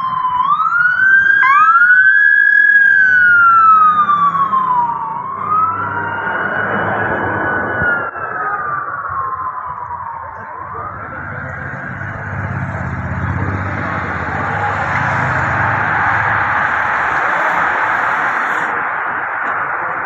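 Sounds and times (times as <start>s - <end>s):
police sirens wailing: 0.0s - 20.0s
motorcycle engine rumbling: 8.6s - 20.0s.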